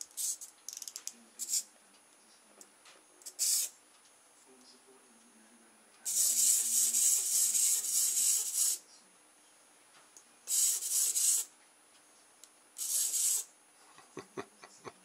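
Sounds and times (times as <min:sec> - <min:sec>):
clockwork motor whirring: 0:06.1 - 0:08.8, 0:10.5 - 0:11.5, 0:12.8 - 0:13.5.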